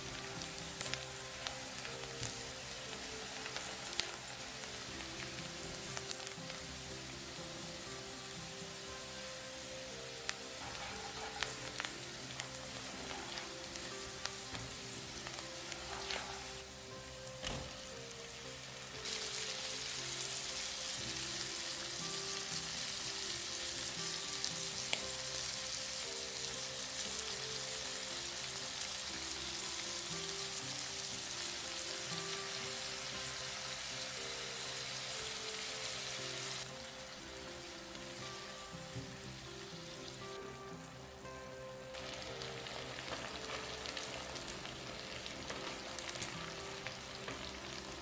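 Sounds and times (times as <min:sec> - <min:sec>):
food sizzling in frying pan: 0:00.0 - 0:48.0
soft background music: 0:00.0 - 0:48.0.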